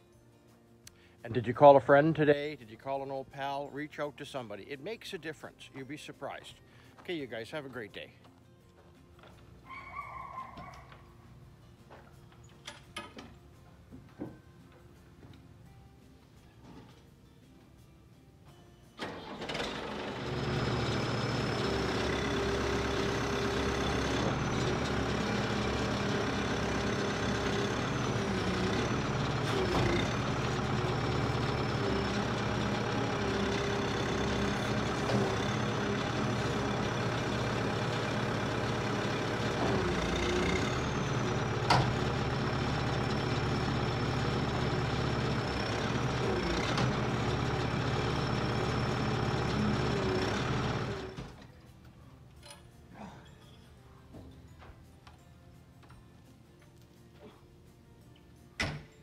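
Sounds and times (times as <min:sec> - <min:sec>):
diesel engine running: 0:19.0 - 0:51.4.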